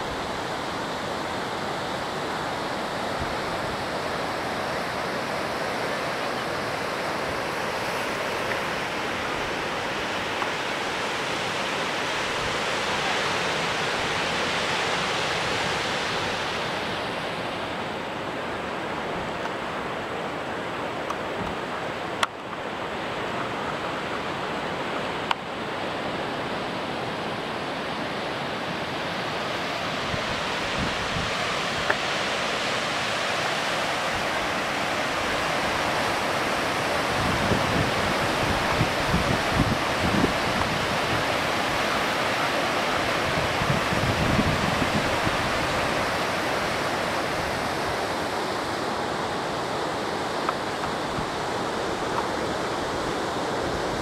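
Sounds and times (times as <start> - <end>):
distant ocean surf: 0.0 - 54.0
wind buffeting microphone: 37.0 - 42.2, 43.0 - 48.3.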